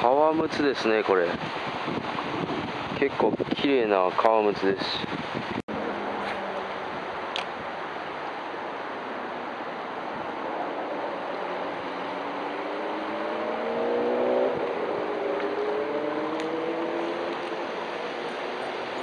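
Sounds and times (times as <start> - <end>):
rushing background noise: 5.0 - 19.0
vehicle engine accelerating: 10.5 - 19.0.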